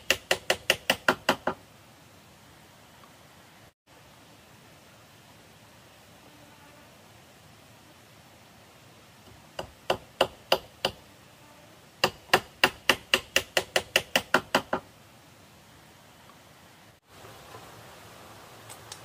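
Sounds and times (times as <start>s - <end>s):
hammer knocking on bamboo: 0.0s - 1.6s, 9.3s - 11.0s, 12.0s - 14.9s.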